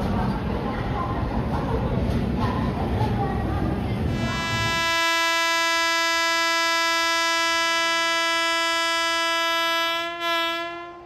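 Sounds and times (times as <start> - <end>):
train horn long note: 4.1 - 11.0.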